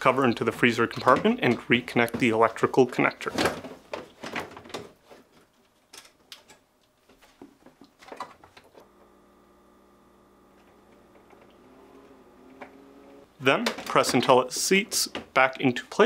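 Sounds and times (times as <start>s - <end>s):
faint hum of held tones: 8.8s - 13.3s.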